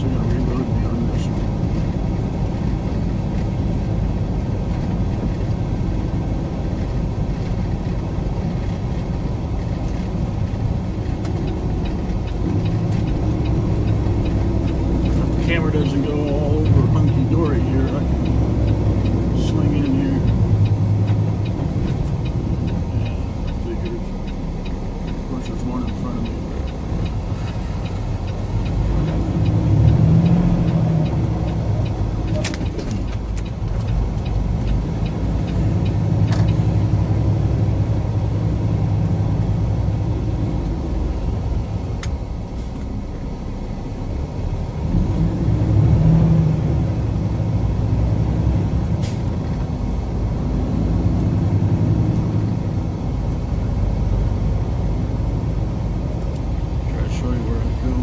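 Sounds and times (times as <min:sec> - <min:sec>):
road noise: 0:00.0 - 0:58.0
truck diesel engine: 0:00.0 - 0:58.0
sharp clicks: 0:06.8 - 0:36.8.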